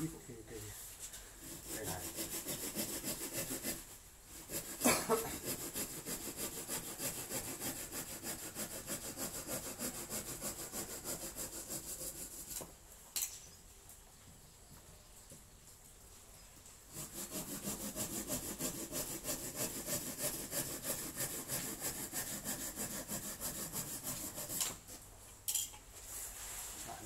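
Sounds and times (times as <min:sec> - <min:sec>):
hand saw cutting wood: 0:01.4 - 0:12.7, 0:16.9 - 0:25.0.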